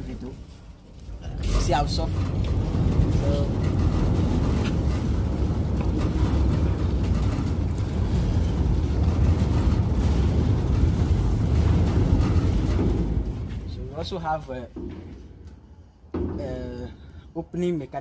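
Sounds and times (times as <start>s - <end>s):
steel gate rolling on track: 1.0s - 15.3s.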